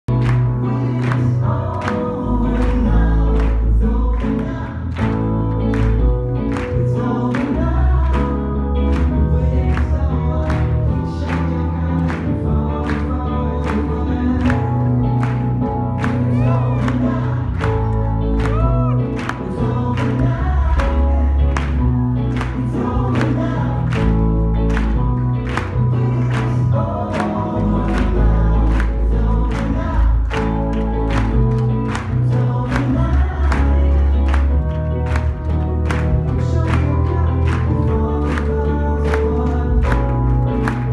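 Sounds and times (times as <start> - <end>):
keyboard: 0.0 - 40.9
guitar: 0.1 - 40.9
person singing: 0.1 - 40.9.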